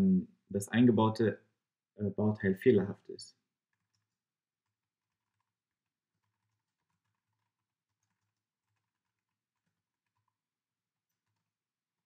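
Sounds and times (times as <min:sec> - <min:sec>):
faint keyboard typing: 0:03.6 - 0:12.0.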